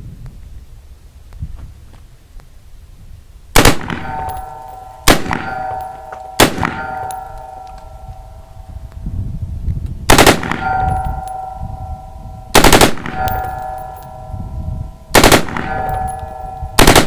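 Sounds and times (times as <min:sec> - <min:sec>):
ringing tone: 0:04.0 - 0:09.6, 0:10.5 - 0:17.0
automatic gunfire bursts: 0:10.1 - 0:10.6, 0:12.6 - 0:13.2, 0:15.2 - 0:15.8, 0:16.8 - 0:17.0.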